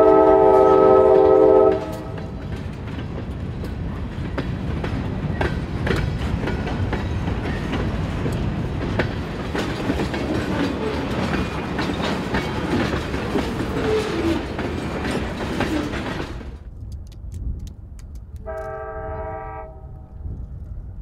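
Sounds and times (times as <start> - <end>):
locomotive horn blast: 0.0 - 2.2, 18.4 - 20.1
train wheels clacking: 0.0 - 16.6
train rumble: 0.0 - 21.0.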